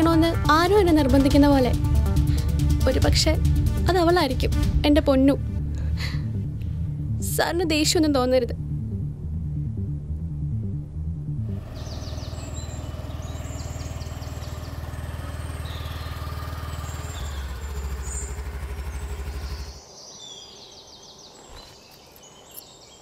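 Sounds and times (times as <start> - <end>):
motor scooter engine running: 11.5 - 19.8
birds chirping: 11.5 - 23.0.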